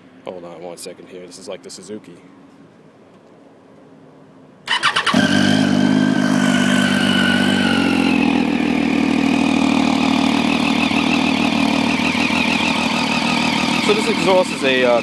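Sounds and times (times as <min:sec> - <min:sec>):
motorcycle engine starting and idling: 0:04.6 - 0:15.0.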